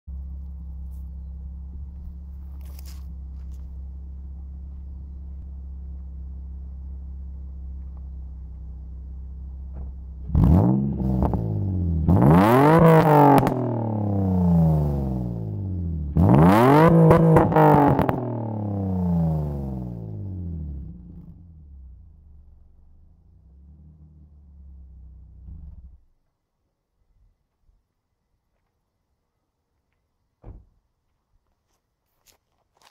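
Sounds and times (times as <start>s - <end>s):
car engine idling and revving: 0.1s - 26.1s.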